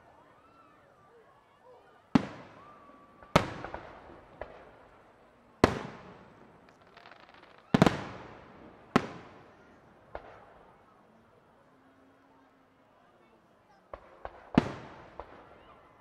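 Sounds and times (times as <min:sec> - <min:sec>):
firework pops and crackle: 0:05.6 - 0:09.4, 0:10.1 - 0:10.8, 0:13.9 - 0:15.8.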